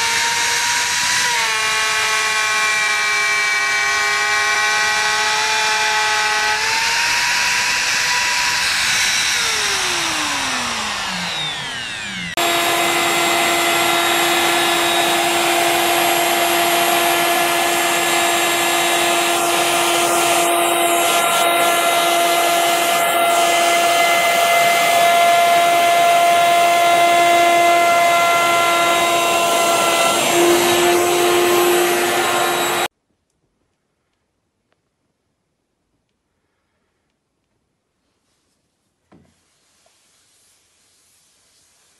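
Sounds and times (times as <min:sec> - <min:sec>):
router motor whining: 0:00.0 - 0:32.9.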